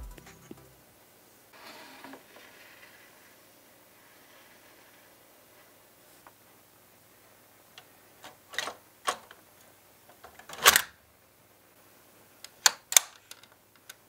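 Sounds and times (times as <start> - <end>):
toy car parts clicking: 12.6 - 14.0.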